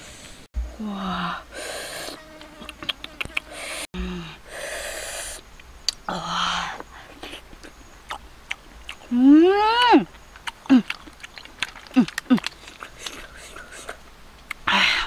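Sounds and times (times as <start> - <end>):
person slurping snails: 1.5 - 3.9, 10.4 - 14.0
wet mouth clicks: 2.4 - 3.8, 9.8 - 14.6.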